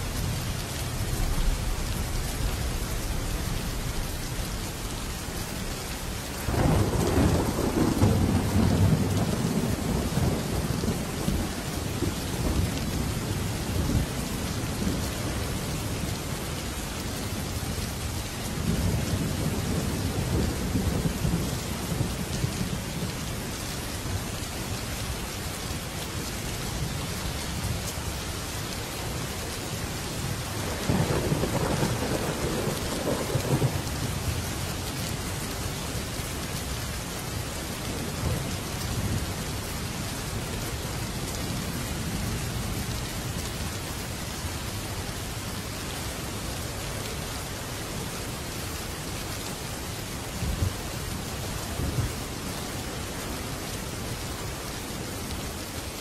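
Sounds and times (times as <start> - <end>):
steady rain: 0.0 - 56.0
thunder rumbling: 6.5 - 15.5, 30.3 - 34.3.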